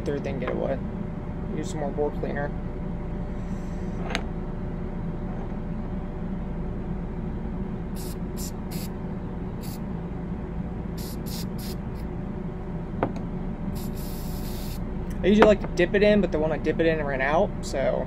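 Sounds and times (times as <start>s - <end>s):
steady low hum: 0.0s - 18.0s
aerosol can spraying: 8.0s - 8.9s, 11.0s - 11.8s, 13.8s - 14.8s.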